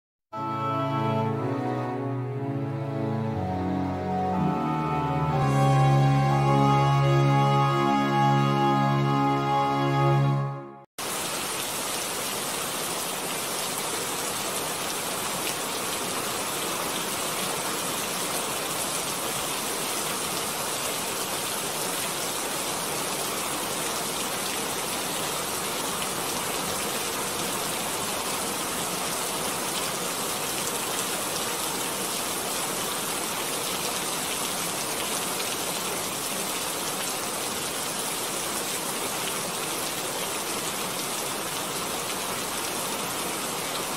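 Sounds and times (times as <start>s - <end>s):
intro music: 0.4s - 10.9s.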